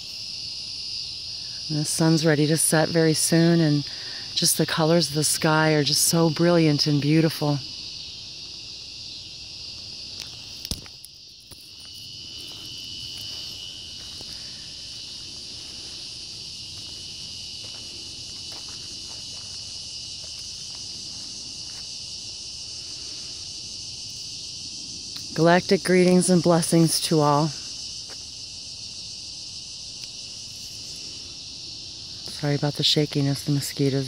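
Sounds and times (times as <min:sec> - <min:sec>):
crickets trilling: 0:00.0 - 0:34.0
sharp insect tone: 0:00.0 - 0:34.0
footsteps and handling ticks: 0:08.4 - 0:22.6.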